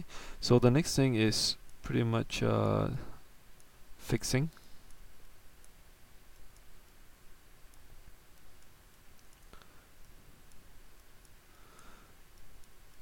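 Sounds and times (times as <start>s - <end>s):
faint room noise: 0.0s - 13.0s
computer mouse clicks: 7.7s - 13.0s.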